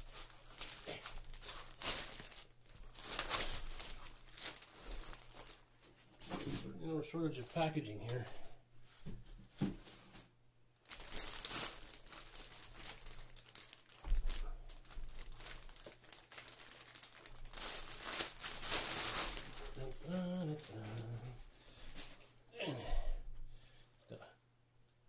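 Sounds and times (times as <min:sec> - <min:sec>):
plastic bag crinkling: 0:00.0 - 0:06.4, 0:10.8 - 0:22.2.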